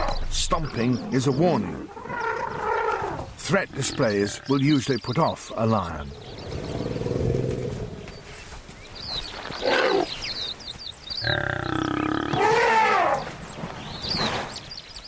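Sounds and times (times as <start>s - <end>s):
bird chirps: 0.0s - 2.6s, 3.7s - 12.4s.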